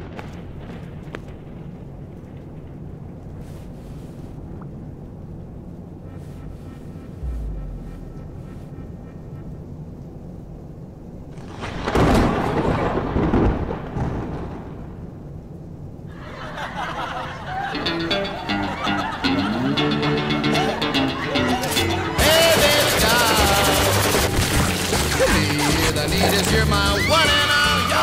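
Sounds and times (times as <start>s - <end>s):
airliner cabin drone: 5.2s - 11.3s
loud burst of noise: 6.5s - 9.9s
low thump: 7.2s - 8.8s.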